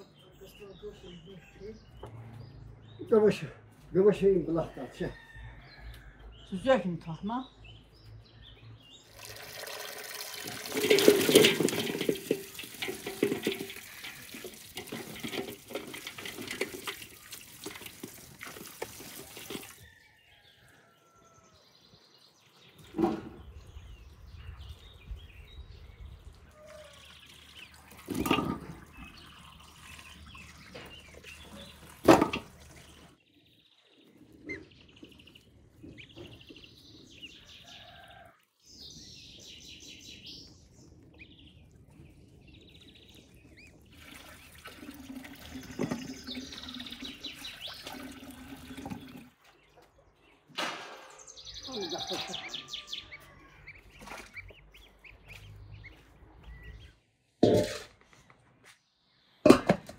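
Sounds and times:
water running and splashing: 0:09.0 - 0:19.9, 0:26.2 - 0:33.2, 0:41.5 - 0:49.8, 0:51.9 - 0:55.6
sharp splashes or knocks: 0:09.2 - 0:19.8.

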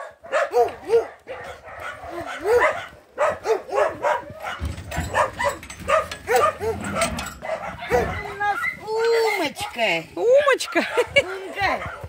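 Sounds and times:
dog barking: 0:00.0 - 0:08.8, 0:10.6 - 0:12.0.

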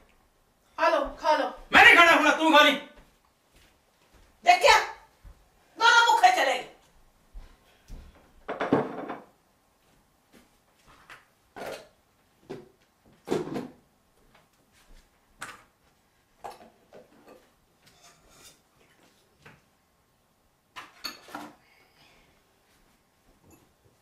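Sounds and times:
cookware and utensils clinking: 0:16.4 - 0:18.7, 0:20.8 - 0:21.6.

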